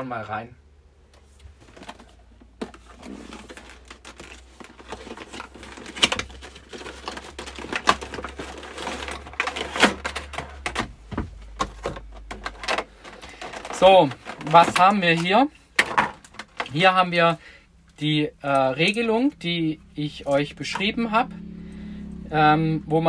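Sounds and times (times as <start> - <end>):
cardboard flaps rustling: 1.2 - 16.9
plastic tray clicking and crackling: 3.4 - 16.9.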